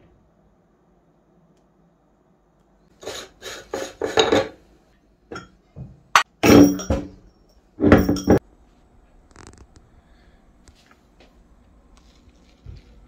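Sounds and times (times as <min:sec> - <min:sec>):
metal parts clinking on glass: 0:06.4 - 0:07.1, 0:07.9 - 0:08.4.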